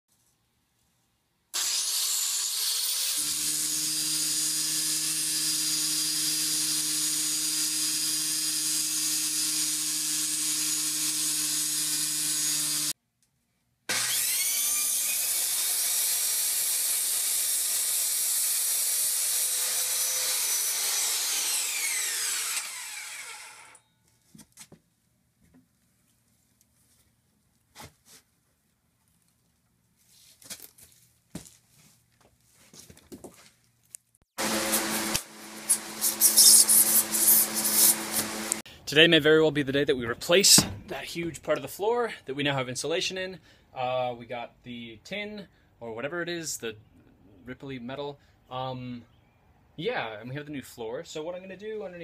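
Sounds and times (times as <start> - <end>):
angle grinder cutting steel: 1.6 - 13.0, 13.9 - 23.8, 34.4 - 38.6
circular saw cutting wood: 1.6 - 13.0, 13.9 - 23.8, 34.4 - 38.7.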